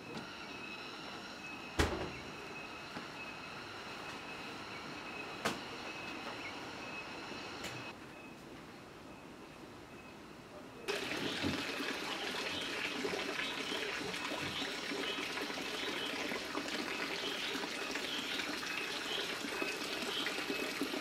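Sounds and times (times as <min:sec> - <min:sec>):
water splashing into pond: 0:10.9 - 0:21.0.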